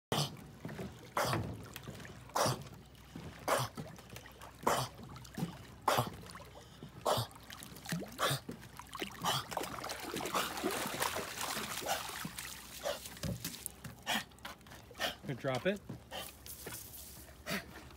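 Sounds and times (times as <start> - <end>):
dog splashing in water: 7.1 - 14.1
water dripping: 7.4 - 14.0.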